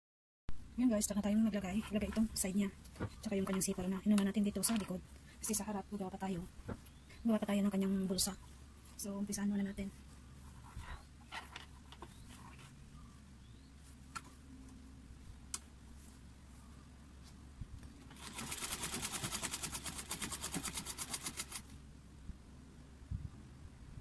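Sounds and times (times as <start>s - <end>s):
sewing machine stitching: 18.1s - 21.6s.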